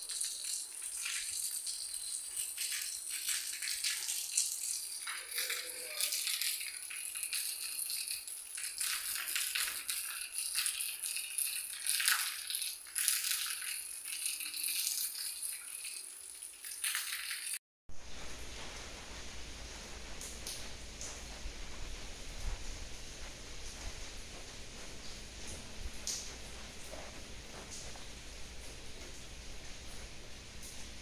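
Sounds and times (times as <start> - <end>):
rain on roofs: 0.0 - 31.0.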